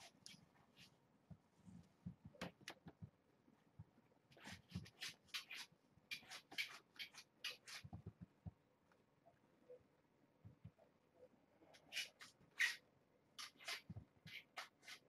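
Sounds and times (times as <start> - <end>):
kitten claws scratching towel: 4.3 - 8.0, 11.8 - 12.8, 13.4 - 15.0.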